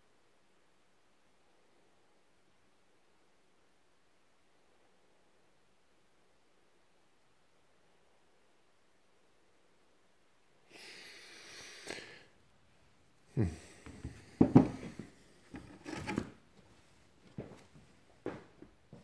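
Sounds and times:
stones knocking on table: 0:14.0 - 0:15.0.

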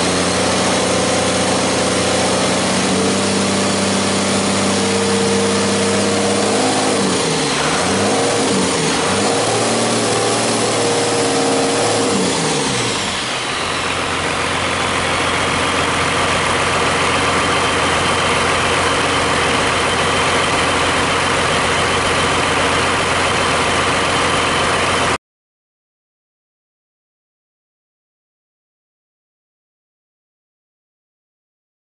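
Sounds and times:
diesel engine revving and idling: 0:00.0 - 0:25.2.

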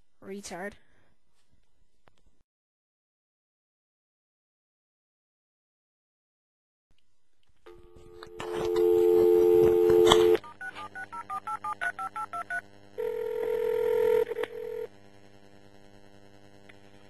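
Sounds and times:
keypad tones: 0:07.7 - 0:12.6
telephone dial tone: 0:07.7 - 0:14.9.

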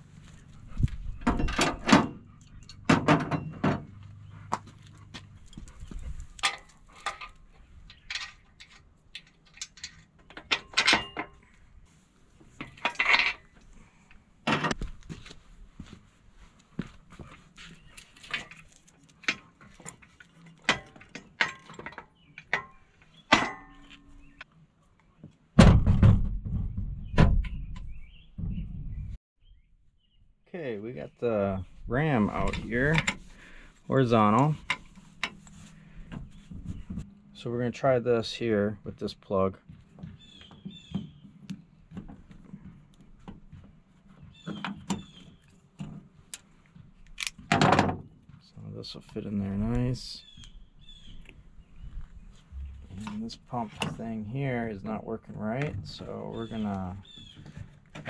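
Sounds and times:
metal clanks and knocks: 0:01.1 - 0:04.0, 0:05.5 - 0:11.5, 0:12.6 - 0:13.5, 0:14.4 - 0:14.9, 0:19.2 - 0:24.4, 0:47.4 - 0:48.1
handling noise: 0:49.8 - 0:54.2
loud low rumble: 0:52.5 - 0:53.2.

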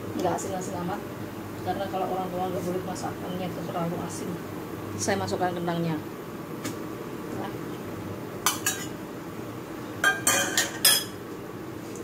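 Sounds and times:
metal utensils clinking on pan: 0:08.5 - 0:08.9, 0:10.0 - 0:11.2.

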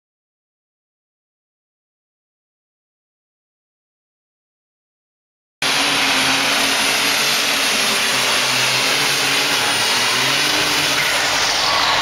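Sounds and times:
tractor engine at full throttle: 0:05.6 - 0:12.0.

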